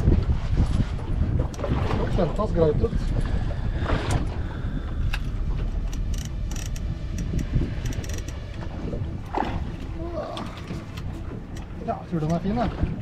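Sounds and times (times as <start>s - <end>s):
low wind rumble: 0.0s - 13.0s
fishing reel clicking: 5.9s - 8.4s.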